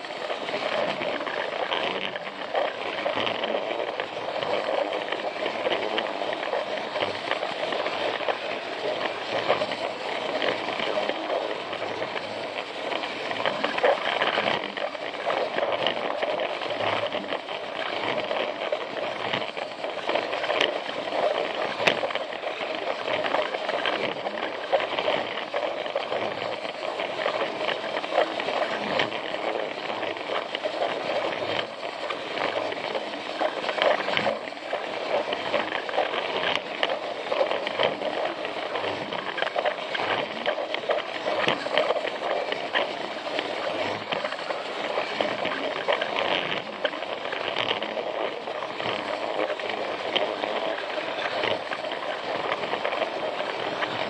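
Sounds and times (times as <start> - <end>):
toy train motor whirring: 0.0 - 54.0
wheels rattling on plastic rails: 0.0 - 54.0.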